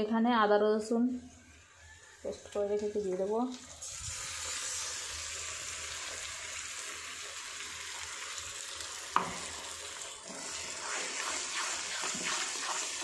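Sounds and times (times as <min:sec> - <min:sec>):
onions sizzling in hot oil: 0:02.4 - 0:13.0
spatula scraping pan: 0:10.3 - 0:13.0.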